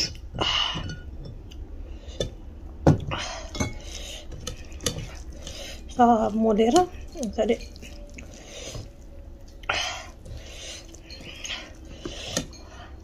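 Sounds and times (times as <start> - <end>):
hand squishing rice and curry: 4.0 - 12.7.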